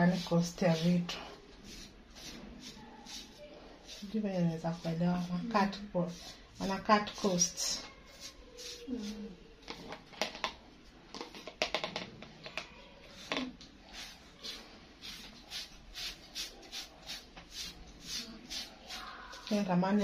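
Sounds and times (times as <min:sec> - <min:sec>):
toothbrush scratchy strokes: 0:00.0 - 0:06.9, 0:08.0 - 0:09.3, 0:13.1 - 0:19.5.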